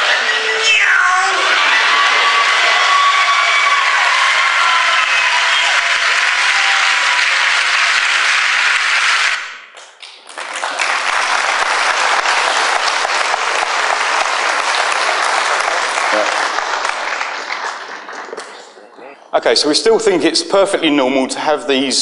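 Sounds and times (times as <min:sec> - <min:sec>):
crowd whooping: 0:00.0 - 0:09.5
large audience applauding: 0:00.0 - 0:18.9.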